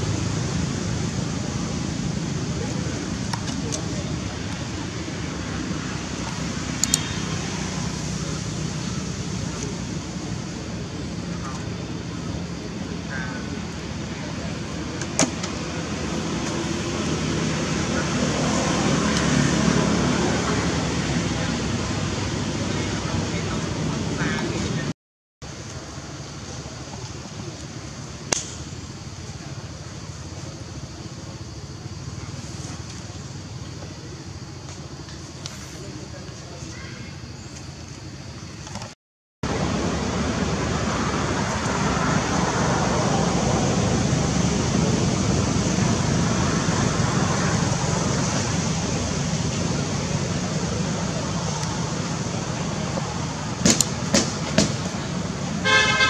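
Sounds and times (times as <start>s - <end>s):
road traffic rushing: 0.0s - 56.0s
sharp click: 28.3s - 28.6s.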